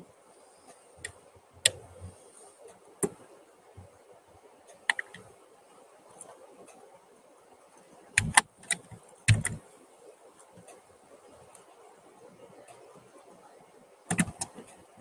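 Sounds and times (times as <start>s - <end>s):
computer mouse clicks: 4.8s - 5.3s, 8.2s - 9.6s, 14.1s - 14.8s.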